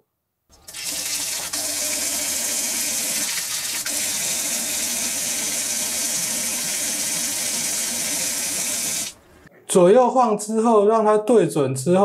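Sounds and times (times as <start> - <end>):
water running from tap: 0.6 - 9.2.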